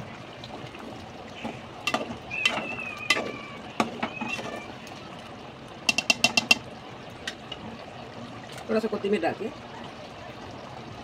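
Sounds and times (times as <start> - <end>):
metal ladle knocking on pot: 1.8 - 4.5, 5.9 - 6.6.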